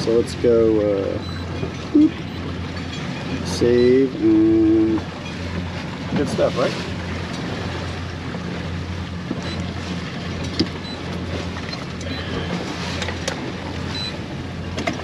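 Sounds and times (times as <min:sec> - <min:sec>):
boat motor humming: 0:00.0 - 0:15.0
water noise: 0:00.0 - 0:15.0
wind: 0:00.0 - 0:15.0.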